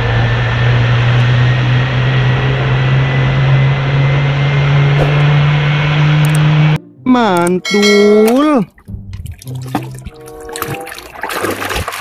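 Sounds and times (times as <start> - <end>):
jet engines low drone: 0.0 - 6.8.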